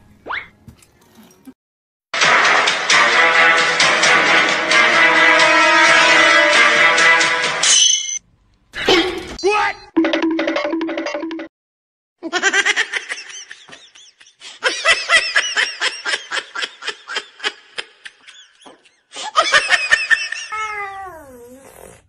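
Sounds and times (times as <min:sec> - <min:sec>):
person laughing hard: 0:12.3 - 0:20.6
cat yowling: 0:20.5 - 0:21.6.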